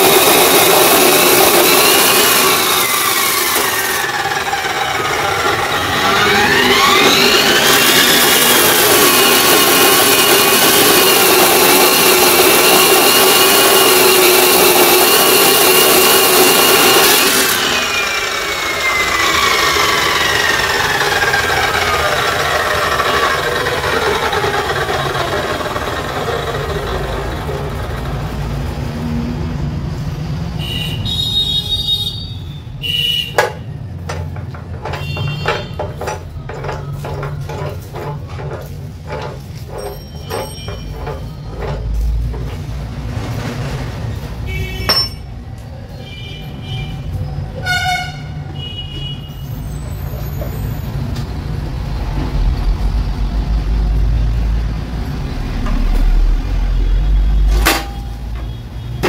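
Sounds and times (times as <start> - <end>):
cut-off saw motor whining: 0.0 - 28.4
vise knocking: 33.3 - 42.8, 44.8 - 45.3.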